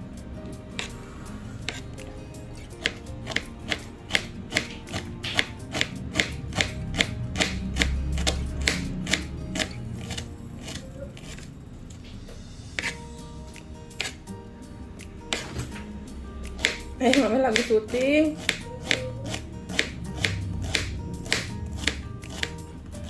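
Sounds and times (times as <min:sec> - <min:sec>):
background music: 0:00.0 - 0:23.0
knife slicing on cutting board: 0:00.8 - 0:01.0, 0:01.6 - 0:01.9, 0:02.6 - 0:11.5, 0:12.8 - 0:13.0, 0:13.9 - 0:14.2, 0:16.5 - 0:17.7, 0:18.4 - 0:22.6.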